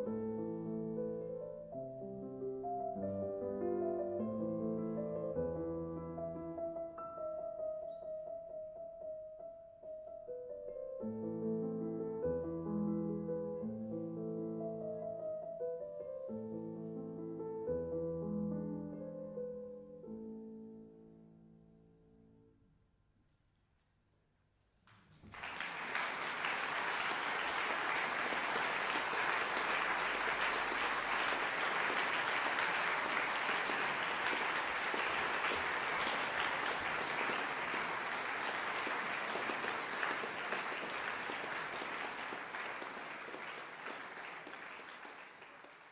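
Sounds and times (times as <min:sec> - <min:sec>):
audience applause: 0:25.2 - 0:45.9.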